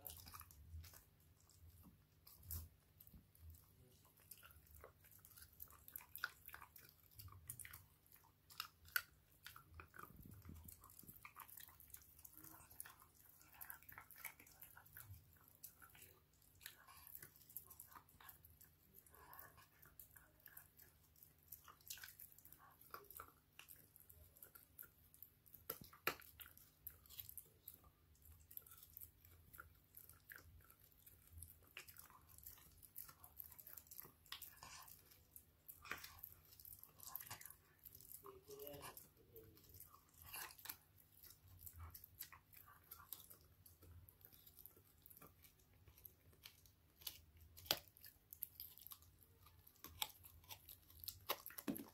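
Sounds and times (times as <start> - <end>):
dog chewing a hard chew: 21.5 - 51.9.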